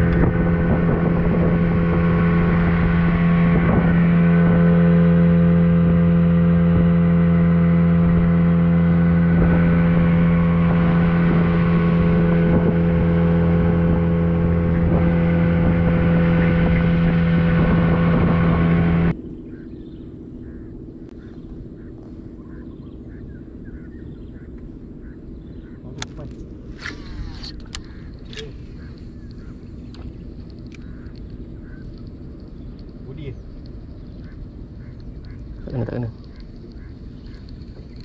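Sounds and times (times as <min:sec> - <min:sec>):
low hum: 0:00.0 - 0:38.0
outboard motor droning: 0:00.0 - 0:38.0
faint small clicks: 0:26.0 - 0:35.4.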